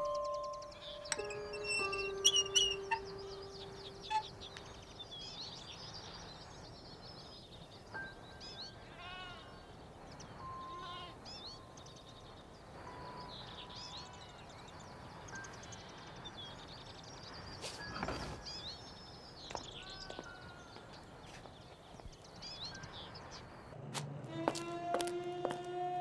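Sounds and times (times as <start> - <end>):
birds chirping and whistling: 0.0 - 5.4.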